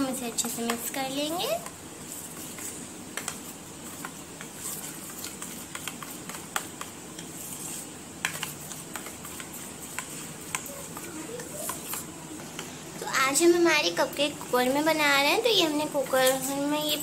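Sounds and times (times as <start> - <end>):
spoon scraping batter in bowl: 0.0 - 13.0.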